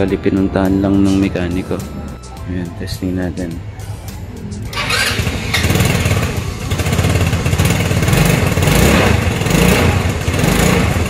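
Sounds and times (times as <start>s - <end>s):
scooter engine idling: 4.6s - 11.0s.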